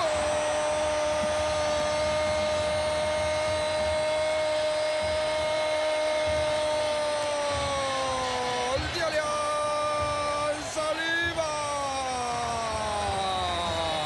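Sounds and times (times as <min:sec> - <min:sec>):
stadium crowd noise: 0:00.0 - 0:14.0
sports commentator shouting: 0:07.2 - 0:14.0.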